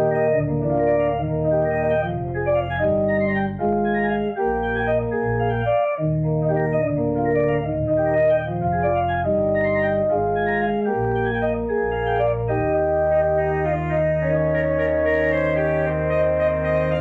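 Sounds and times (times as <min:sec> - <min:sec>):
organ playing sustained chords: 0:00.0 - 0:17.0.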